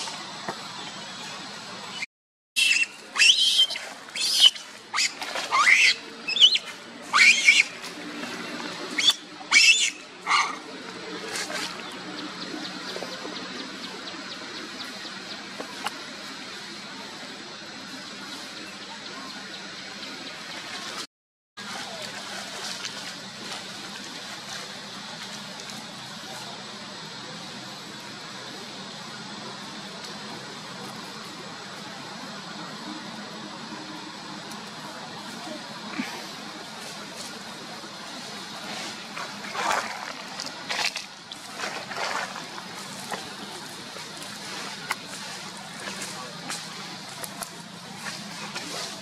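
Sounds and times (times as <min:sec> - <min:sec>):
outdoor background hiss: 0:00.0 - 0:21.0, 0:21.6 - 0:49.0
leaves and branches rustling: 0:20.4 - 0:27.1, 0:27.7 - 0:49.0.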